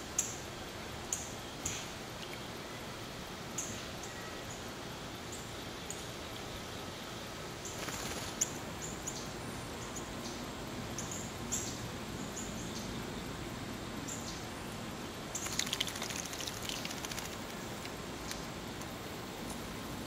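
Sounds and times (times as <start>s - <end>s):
outdoor hiss: 0.0s - 20.0s
bird splashing in water: 15.3s - 18.4s.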